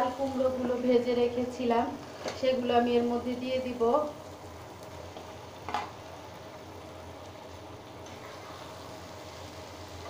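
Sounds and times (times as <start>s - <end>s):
oil sizzling in frying pan: 0.0s - 10.0s.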